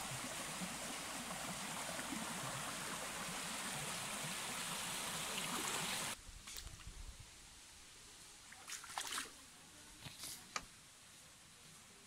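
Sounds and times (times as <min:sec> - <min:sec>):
stream rushing over rocks: 0:00.0 - 0:06.2.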